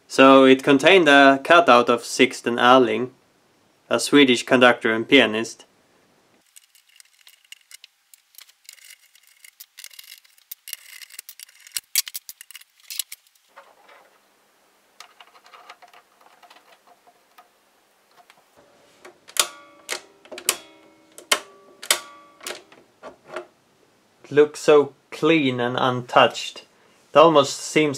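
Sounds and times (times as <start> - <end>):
metal parts clicking and scraping: 6.4 - 14.2, 15.0 - 17.5, 19.0 - 23.4.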